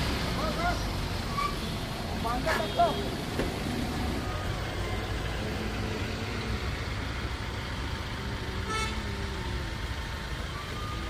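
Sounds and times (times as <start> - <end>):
vehicle engine rumbling: 0.0 - 11.0
vehicle horn toot: 2.4 - 3.2, 8.6 - 9.1.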